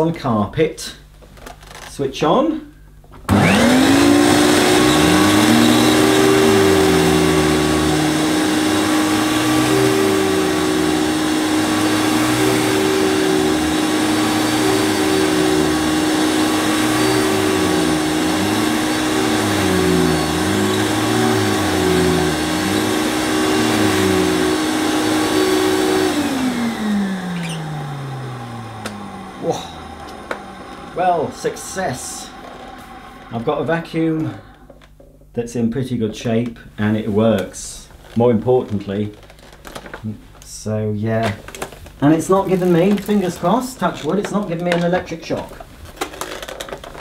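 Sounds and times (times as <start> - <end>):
vacuum nozzle brush on carpet: 3.3 - 34.5, 42.2 - 46.5
vacuum cleaner motor whine: 3.3 - 34.9, 42.2 - 44.8
low hum rising and falling: 3.4 - 34.6.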